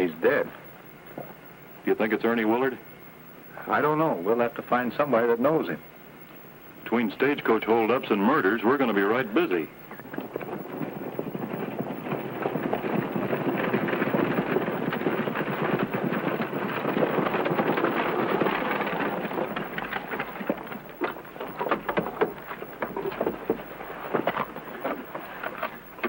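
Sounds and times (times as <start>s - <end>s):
horse hooves trotting on dirt: 6.9s - 26.0s
wooden buggy wheels rattling: 6.9s - 26.0s.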